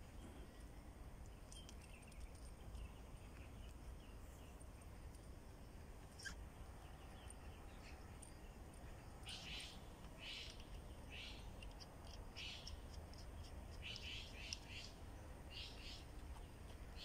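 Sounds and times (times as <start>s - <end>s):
faint low outdoor rumble: 0.0s - 17.0s
bird raspy calls: 6.1s - 6.5s, 9.2s - 16.0s.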